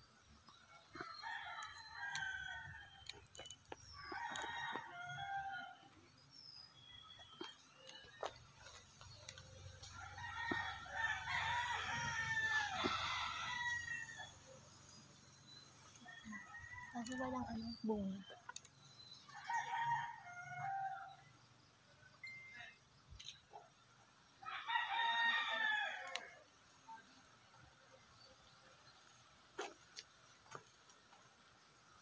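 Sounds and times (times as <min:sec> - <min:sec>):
roosters crowing: 0:00.4 - 0:06.0, 0:07.4 - 0:15.0, 0:15.7 - 0:17.9, 0:19.2 - 0:21.3, 0:24.4 - 0:27.3.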